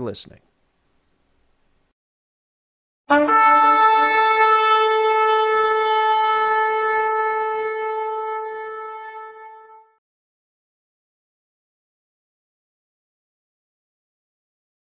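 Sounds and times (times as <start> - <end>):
horn blowing held note: 3.1 - 10.0
short low horn note: 3.1 - 10.0.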